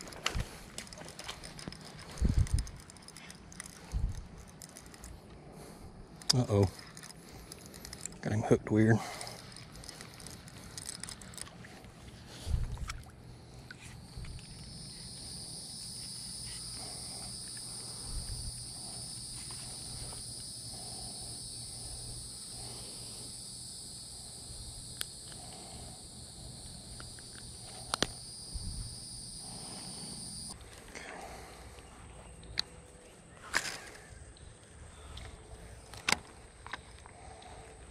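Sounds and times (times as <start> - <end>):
high-pitched insect chorus: 0.0 - 11.4, 13.3 - 37.9
sharp clicks: 26.9 - 28.2.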